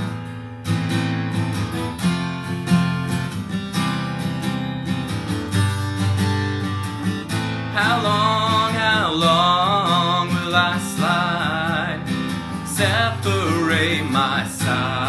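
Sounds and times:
acoustic guitar strumming chords: 0:00.0 - 0:15.0
man singing: 0:07.7 - 0:15.0.

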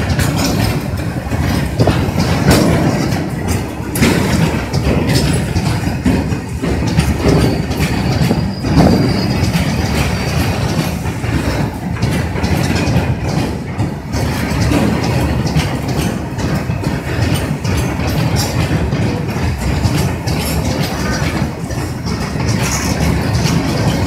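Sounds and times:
steel wheels rumbling: 0:00.0 - 0:24.0
wheels knocking over rail joints: 0:00.0 - 0:24.0
faint high wheel squeal: 0:07.4 - 0:10.7.

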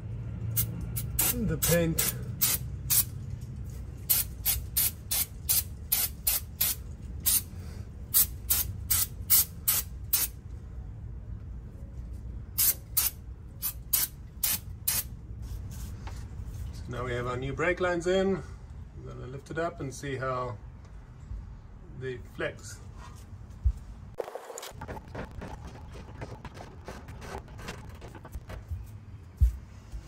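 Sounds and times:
aerosol spray bursts: 0:00.6 - 0:03.1, 0:04.1 - 0:07.5.

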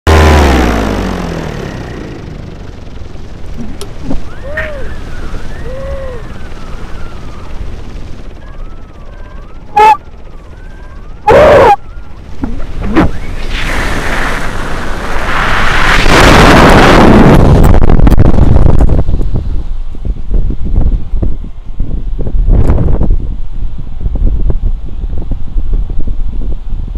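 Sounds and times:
loud wind buffets: 0:01.5 - 0:26.9
whistling tones: 0:04.1 - 0:07.6
air rushing over microphone: 0:12.4 - 0:26.9.

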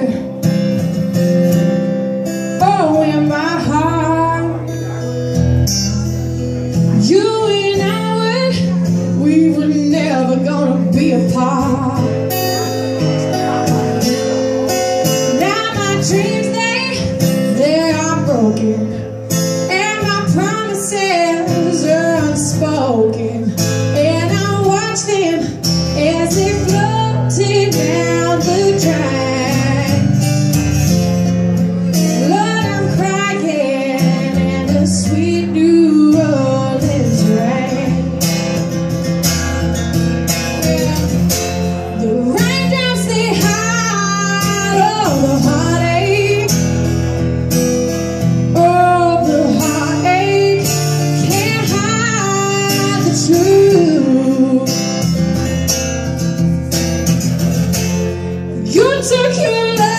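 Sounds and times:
woman singing: 0:00.0 - 0:01.0, 0:02.2 - 0:04.8, 0:06.8 - 0:13.0, 0:14.9 - 0:30.4, 0:31.8 - 0:38.7, 0:40.3 - 0:47.0, 0:48.2 - 0:55.6, 0:58.5 - 0:59.9
acoustic guitar: 0:00.0 - 0:59.9.

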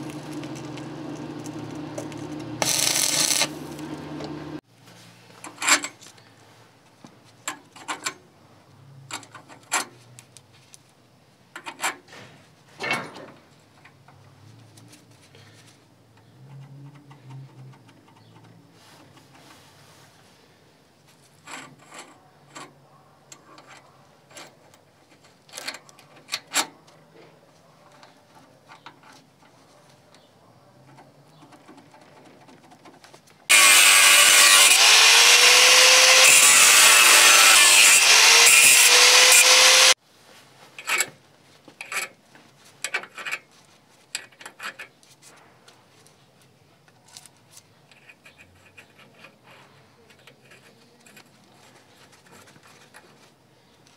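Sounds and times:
angle grinder cutting steel: 0:00.0 - 0:04.6, 0:33.5 - 0:40.0.

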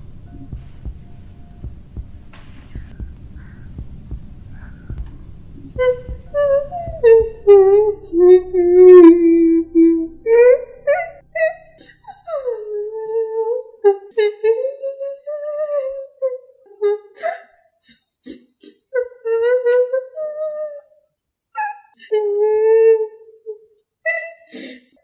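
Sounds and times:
low throbbing rumble: 0:00.0 - 0:12.9
wavering voice-like wail: 0:05.6 - 0:14.2.

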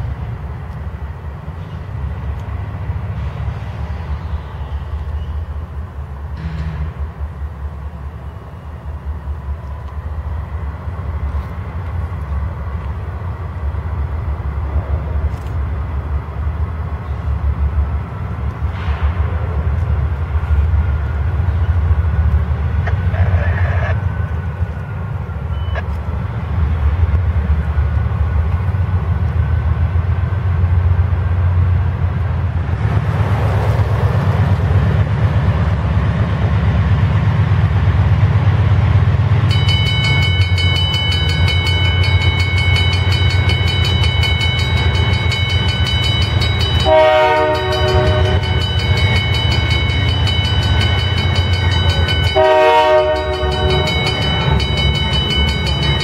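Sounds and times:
diesel locomotives rumbling: 0:00.0 - 0:56.0
crossing bell ringing: 0:39.4 - 0:56.0
locomotive horn blasts: 0:46.8 - 0:48.7, 0:52.3 - 0:54.4.

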